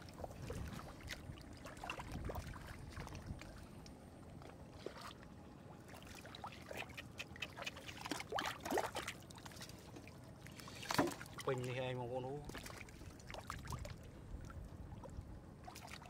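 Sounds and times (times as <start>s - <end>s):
hands squelching through wet mud: 6.0s - 11.5s.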